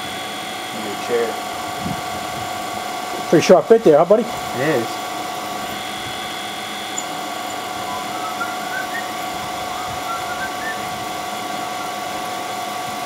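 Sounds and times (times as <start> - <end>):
milling machine spindle whine: 4.3 - 13.0.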